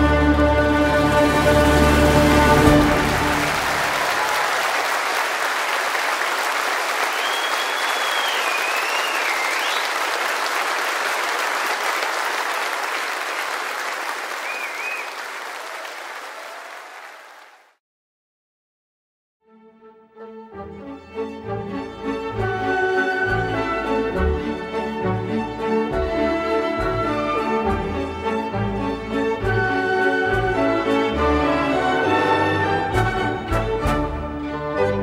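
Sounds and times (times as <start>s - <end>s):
crowd applauding: 0.0s - 17.8s
wavering whistle: 7.1s - 9.9s, 14.4s - 15.2s.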